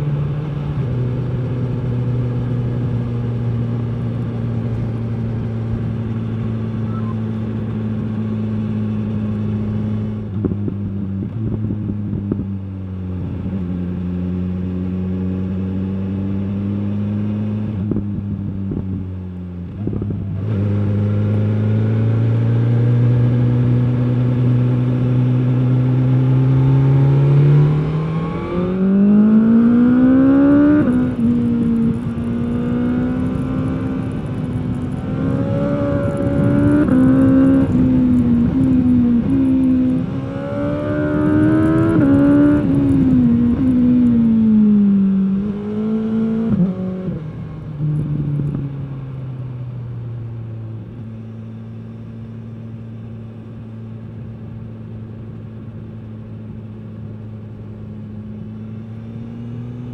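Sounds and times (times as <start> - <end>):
motorcycle engine revving: 19.8 - 48.7.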